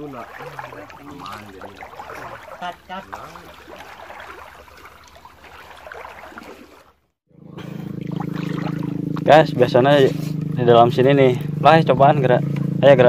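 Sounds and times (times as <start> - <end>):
water sloshing around legs: 0.0 - 10.0
engine drone with low hum: 7.3 - 13.0.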